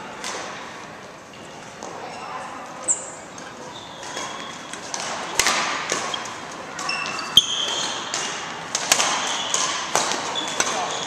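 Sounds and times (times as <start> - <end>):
rackets hitting shuttlecock: 0.1 - 0.8, 4.0 - 11.0
shoes squeaking on floor: 1.3 - 5.2, 6.0 - 8.4, 9.2 - 11.0.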